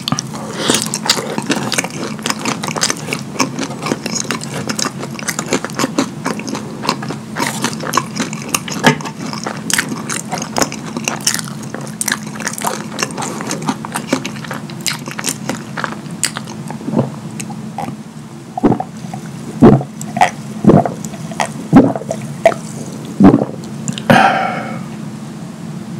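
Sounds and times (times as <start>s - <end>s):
wet chewing and lip smacking: 0.0s - 18.0s, 18.6s - 24.1s
gulping a drink: 18.6s - 24.9s
breathy burst: 24.0s - 25.0s.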